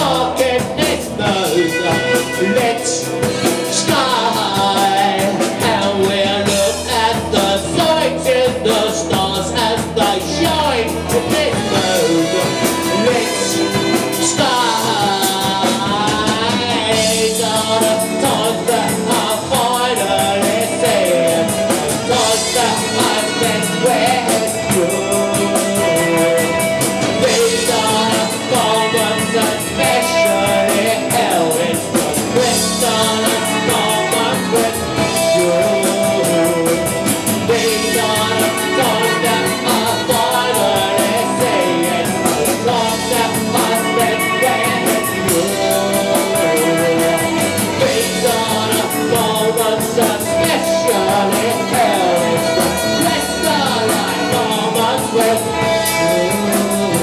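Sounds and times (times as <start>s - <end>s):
drums: 0.0s - 57.0s
electric guitar: 0.0s - 57.0s
man singing: 0.0s - 57.0s
saxophone: 0.0s - 57.0s.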